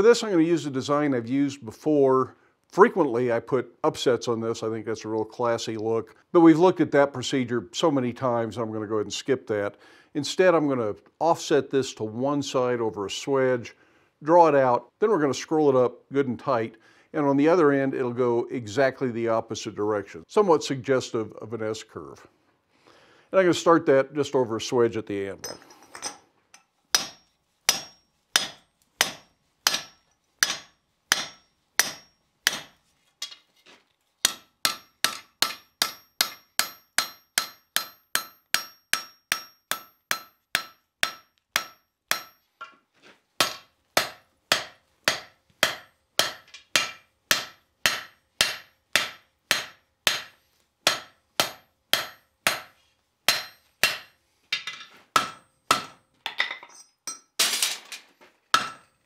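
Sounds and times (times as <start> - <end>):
hammer striking steel on anvil: 25.4 - 33.4, 34.2 - 42.5, 43.4 - 57.3, 58.5 - 59.0
anvil ringing: 27.0 - 32.8, 34.2 - 42.5, 50.9 - 52.7, 53.3 - 54.1.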